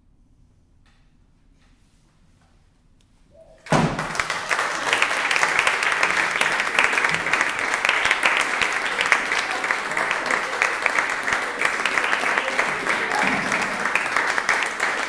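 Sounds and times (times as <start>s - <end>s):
audience applause: 3.7s - 15.0s.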